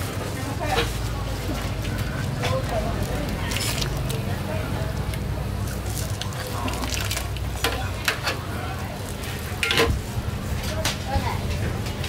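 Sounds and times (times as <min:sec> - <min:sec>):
utensils clinking and scraping: 0:02.3 - 0:04.3, 0:09.4 - 0:10.0.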